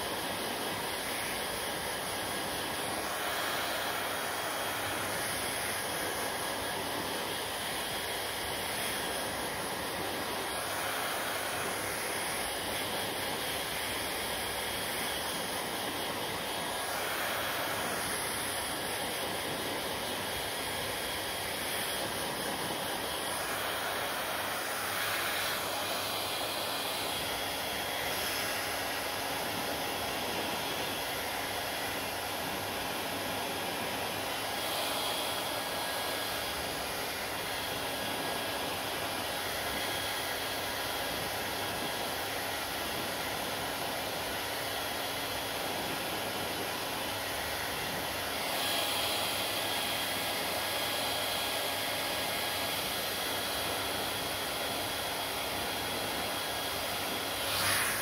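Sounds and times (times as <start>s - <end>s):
hair dryer running: 0.0s - 58.0s.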